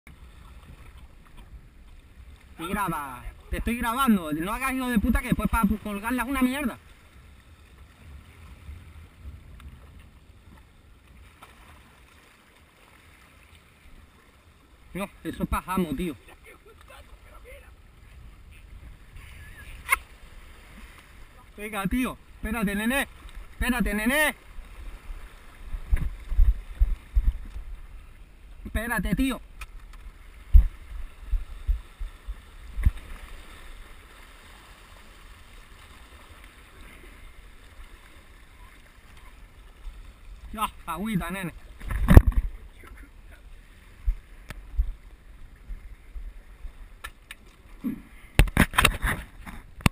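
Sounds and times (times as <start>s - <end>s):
choppy sea water: 0.0s - 49.9s
waves splashing against rocks: 0.1s - 49.9s
wind rumble on microphone: 7.6s - 10.7s, 24.8s - 28.2s, 30.1s - 33.2s
thumps on microphone: 30.5s - 30.7s, 41.8s - 42.6s.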